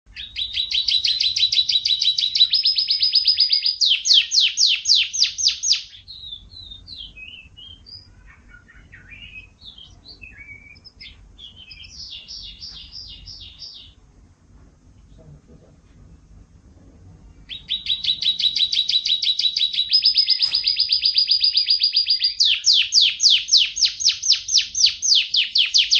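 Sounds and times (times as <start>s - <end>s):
canary singing trills: 0.1s - 14.1s, 17.2s - 25.9s.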